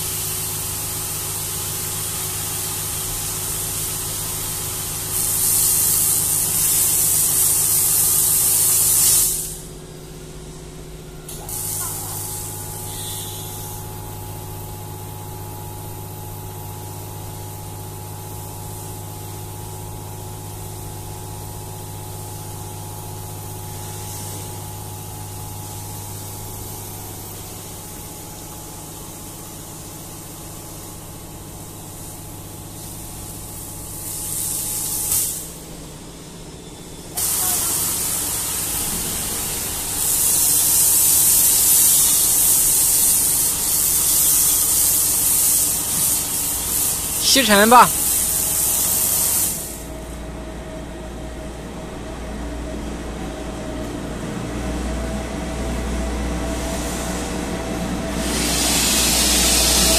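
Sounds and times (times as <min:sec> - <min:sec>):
high-pressure water jet hissing: 0:00.0 - 0:09.6, 0:11.4 - 0:14.2, 0:32.8 - 0:35.6, 0:37.2 - 0:49.9, 0:58.1 - 0:59.9
pressure pump humming: 0:00.0 - 0:35.7, 0:37.2 - 0:59.9.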